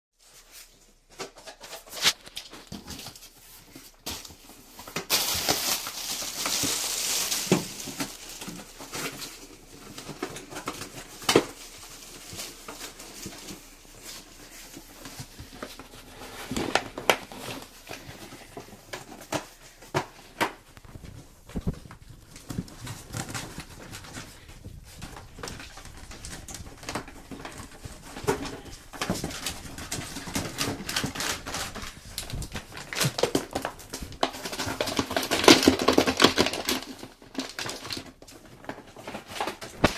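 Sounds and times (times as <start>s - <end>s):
plastic packing crinkling: 0.3s - 39.9s.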